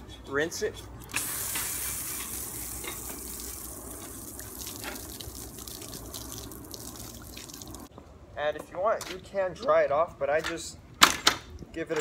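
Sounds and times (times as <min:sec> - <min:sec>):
hose spraying water: 0:01.1 - 0:07.9
water splashing off bicycle: 0:01.1 - 0:07.9.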